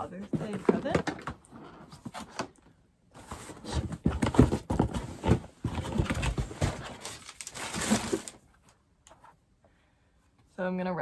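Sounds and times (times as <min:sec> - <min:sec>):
cardboard box knocks and rustling: 0:03.5 - 0:07.0.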